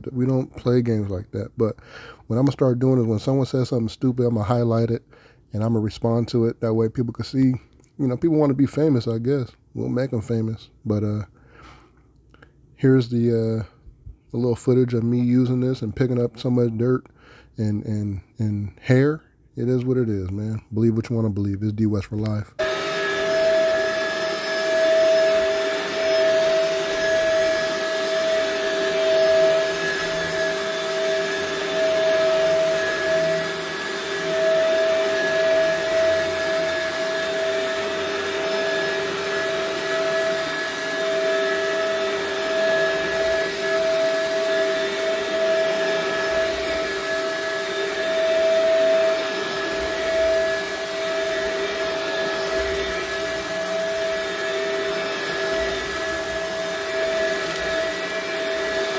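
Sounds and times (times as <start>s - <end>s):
vacuum cleaner on rug: 22.6s - 58.9s.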